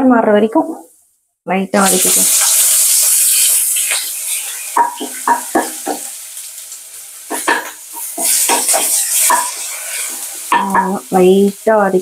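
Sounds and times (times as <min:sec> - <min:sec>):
frying oil sizzle: 0:01.8 - 0:12.0
spoon scraping pan: 0:07.3 - 0:10.9.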